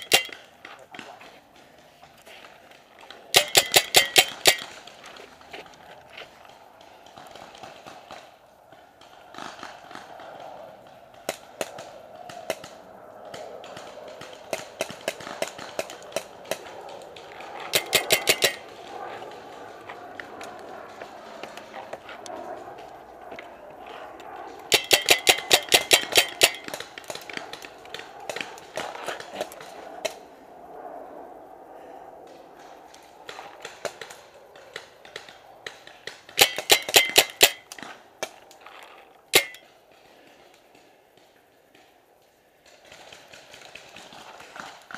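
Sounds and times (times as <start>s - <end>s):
paintball markers firing: 0.0s - 2.0s, 3.1s - 8.3s, 11.2s - 22.1s, 24.5s - 30.2s, 32.6s - 38.4s, 39.3s - 39.7s.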